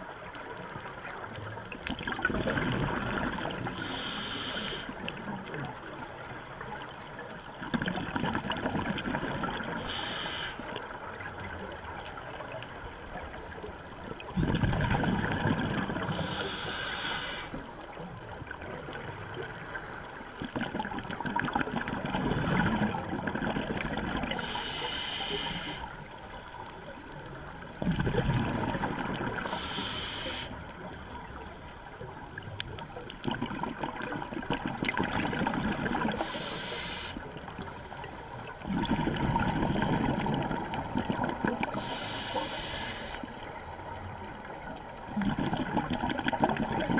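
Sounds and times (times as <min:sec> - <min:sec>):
gurgling exhaled bubbles: 0:00.0 - 0:03.9, 0:04.9 - 0:09.9, 0:13.2 - 0:16.4, 0:20.4 - 0:24.6, 0:27.4 - 0:29.7, 0:32.0 - 0:36.6, 0:37.2 - 0:42.0, 0:43.9 - 0:46.9
regulator inhale hiss: 0:03.6 - 0:05.2, 0:09.7 - 0:11.0, 0:16.0 - 0:17.9, 0:24.2 - 0:26.2, 0:29.4 - 0:31.1, 0:36.1 - 0:38.0, 0:41.6 - 0:43.8.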